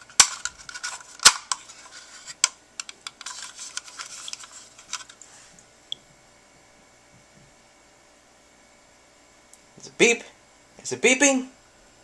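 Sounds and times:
plastic clicking and rubbing: 0.2 - 5.2.

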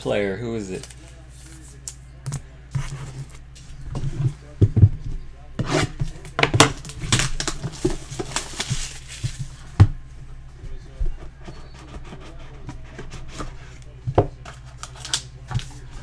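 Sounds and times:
plastic wrap crinkling and tearing: 6.1 - 9.6, 14.7 - 15.8.

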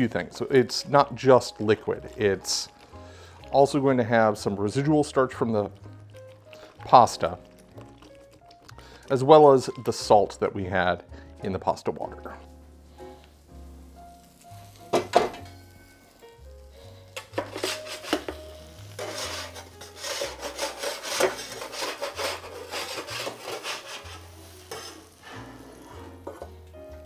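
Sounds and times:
pot being stirred: 0.1 - 10.9, 17.2 - 26.6
metal scraper scraping baking sheet: 17.4 - 18.3, 19.0 - 25.4.

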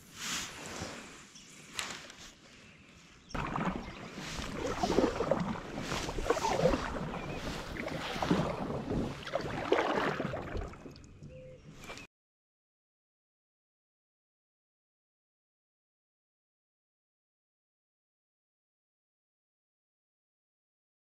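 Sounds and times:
wind on microphone: 3.4 - 11.4
water splashing against kayak hull: 3.4 - 12.1.

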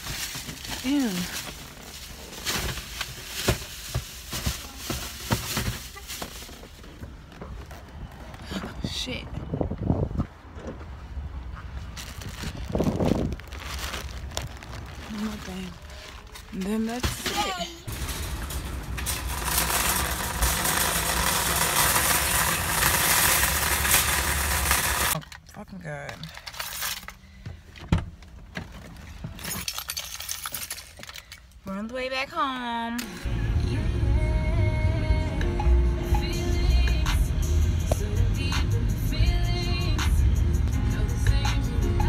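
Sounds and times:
shopping cart rattling over asphalt: 0.0 - 7.0, 11.9 - 25.2.

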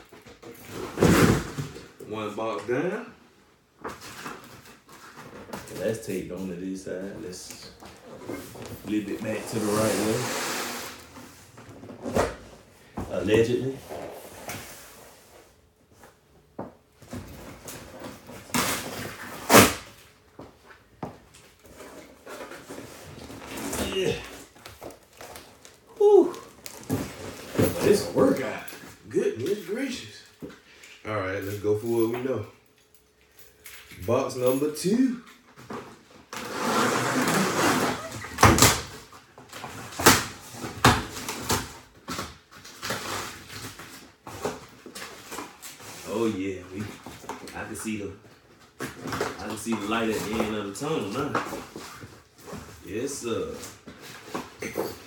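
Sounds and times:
cardboard scraping rustles: 7.0 - 12.6, 21.5 - 29.0, 36.2 - 41.4
cardboard tearing: 36.4 - 38.8.

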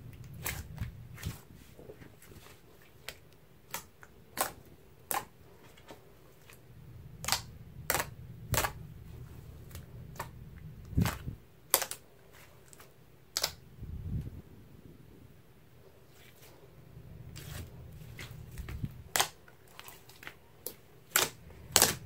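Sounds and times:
sticky slime pops and clicks: 7.2 - 8.8
low rumble of handling: 16.6 - 19.2.

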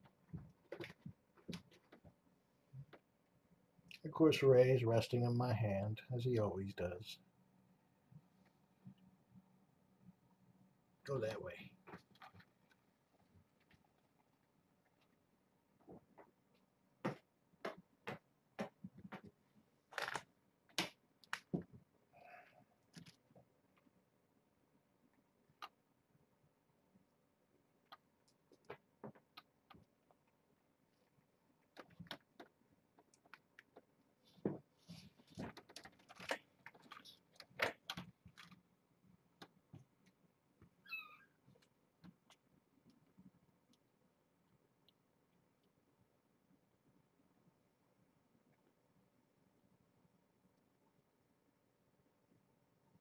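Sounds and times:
kittens scrambling and tapping: 31.7 - 38.6
kitten squeak: 40.8 - 41.4.

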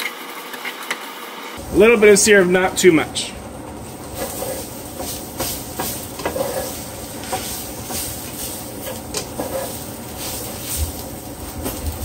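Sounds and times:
meat sizzling in a skillet: 3.8 - 12.0
spatula scraping a pan: 4.1 - 11.0.

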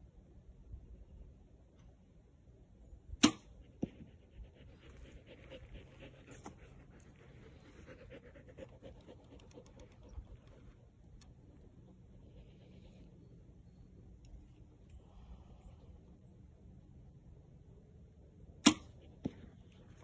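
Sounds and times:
arrow striking target: 3.2 - 4.0, 18.6 - 19.4.

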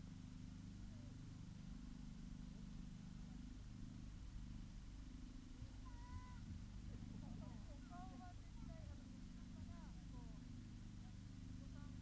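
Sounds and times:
distant crowd murmur: 5.7 - 12.0.

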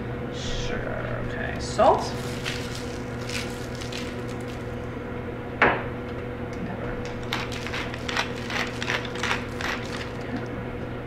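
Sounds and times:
low steady hum: 0.0 - 11.0
pepper mill grinding: 2.1 - 4.8, 7.0 - 10.5.

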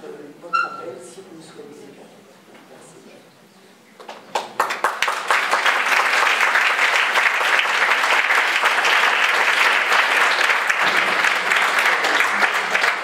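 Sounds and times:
audience applauding: 4.0 - 13.0.

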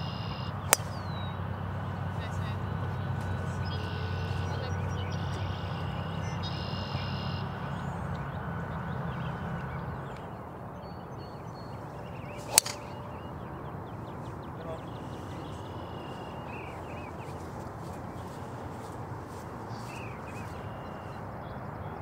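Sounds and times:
golf club striking ball: 0.7 - 1.2, 12.1 - 13.3.

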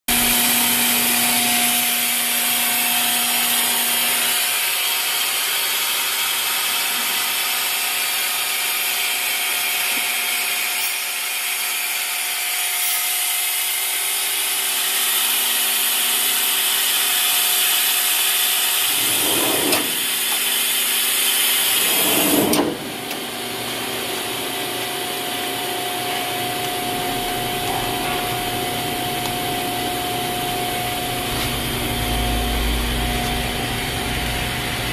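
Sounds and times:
lathe idling hum and whine: 0.1 - 34.9
automatic doors sliding closed: 18.9 - 20.2, 21.8 - 23.3, 26.9 - 29.6.

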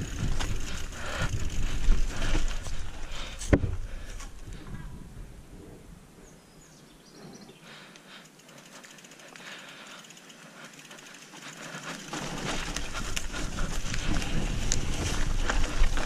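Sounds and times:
bike rattling clicks: 0.0 - 4.6, 7.9 - 16.0
tyres on loose ground: 0.0 - 5.4, 7.6 - 16.0
wind on microphone rumble: 0.0 - 6.3, 12.2 - 16.0.

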